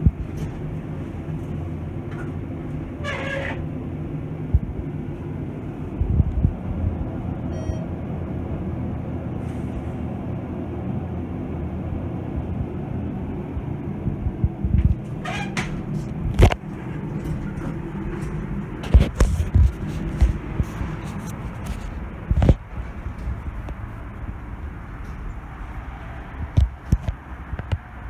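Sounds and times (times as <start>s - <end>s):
elevator low rumble: 0.0s - 28.0s.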